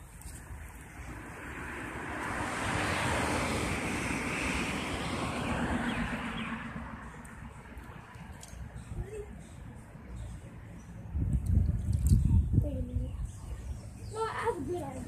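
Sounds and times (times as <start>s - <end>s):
vehicle passing by: 0.5s - 8.4s.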